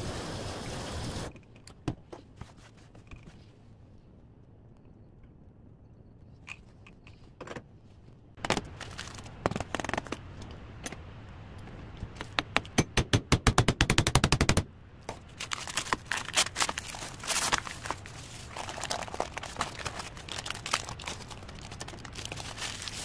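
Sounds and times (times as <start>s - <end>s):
plastic film crinkling: 8.7s - 10.1s, 15.2s - 23.0s.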